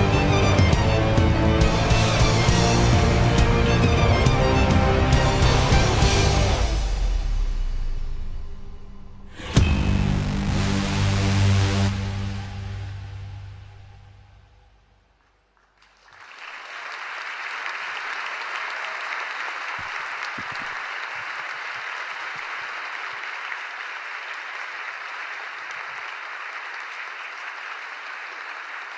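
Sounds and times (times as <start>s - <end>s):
audience applause: 0.0s - 6.9s, 15.2s - 28.9s.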